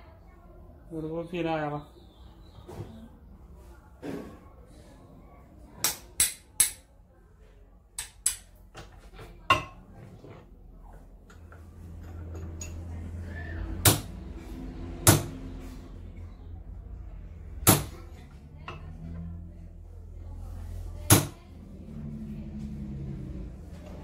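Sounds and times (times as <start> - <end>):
hammer striking steel: 15.0 - 15.4.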